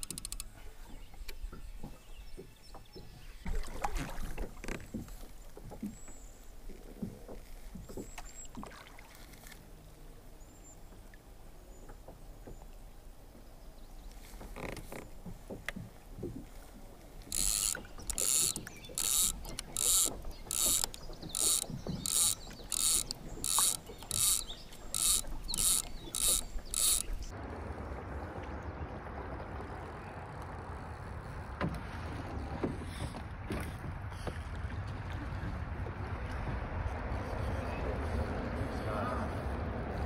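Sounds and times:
mechanical ratcheting: 0.0s - 0.5s, 17.3s - 27.3s
flowing river water: 0.0s - 40.0s.

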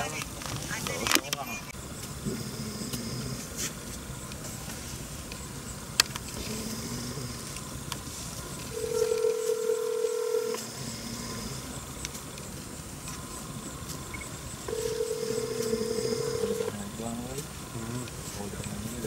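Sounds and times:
low hiss: 0.0s - 19.0s
telephone ringback beep: 8.7s - 10.6s, 14.7s - 16.7s.

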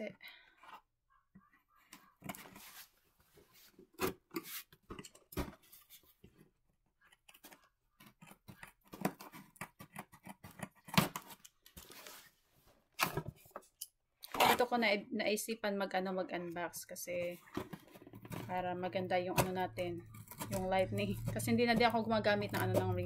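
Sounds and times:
cardboard rustling: 1.9s - 6.6s, 7.3s - 13.7s
scissors snipping cardboard: 8.0s - 11.4s, 19.3s - 23.0s.

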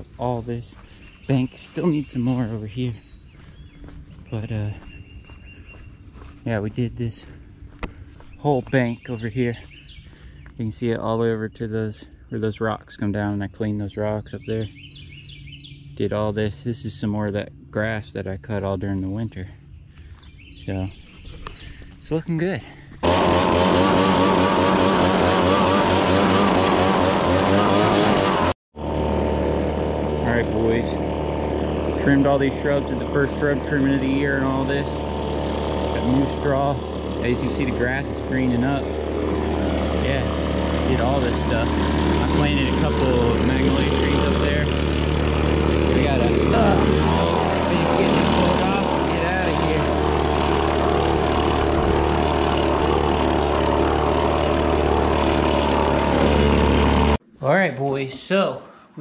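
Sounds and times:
low engine hum: 0.0s - 12.4s, 13.1s - 57.2s
leaf blower running: 23.0s - 57.2s.

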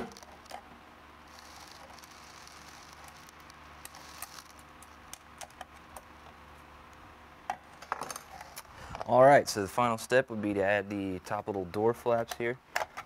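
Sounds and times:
small metal parts clicking: 1.3s - 5.6s.

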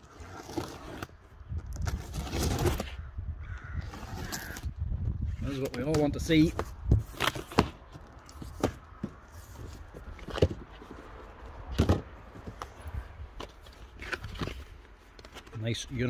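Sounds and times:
cardboard and paper rustling: 0.0s - 3.0s, 5.3s - 16.0s
cardboard knocks and scuffs: 5.7s - 10.9s.

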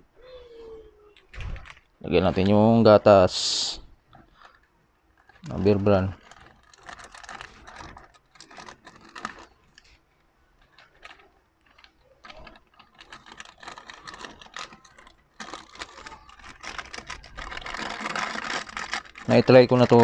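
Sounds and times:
plastic sachet crinkling: 4.2s - 10.0s, 10.6s - 20.0s.

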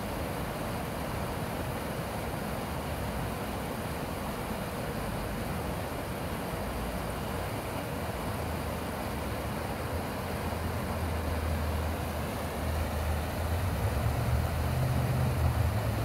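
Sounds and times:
creek water rushing: 0.0s - 16.0s
low engine hum: 9.3s - 16.0s.

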